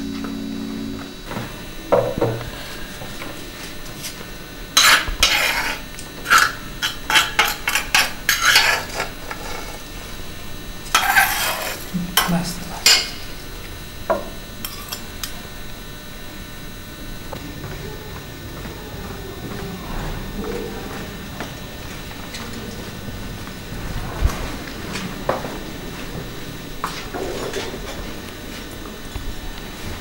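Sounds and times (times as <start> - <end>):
spoon scraping and clinking bowls: 4.8 - 9.7, 10.9 - 13.3.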